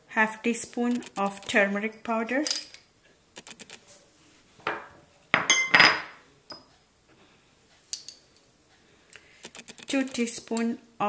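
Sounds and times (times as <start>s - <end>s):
spoon clinking on ceramic bowls: 4.7s - 6.7s.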